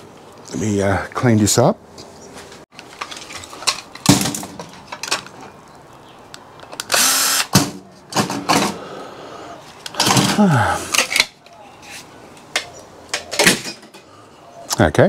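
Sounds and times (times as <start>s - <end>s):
small power tool motor: 6.9s - 7.5s.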